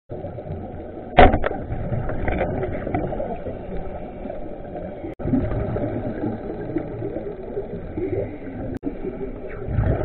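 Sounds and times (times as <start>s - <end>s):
muffled rushing water: 0.1s - 10.0s.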